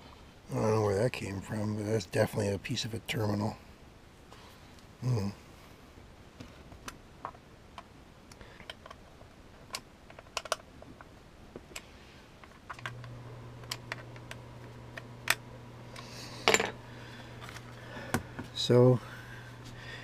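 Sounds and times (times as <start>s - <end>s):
steady low hum: 11.7s - 20.0s.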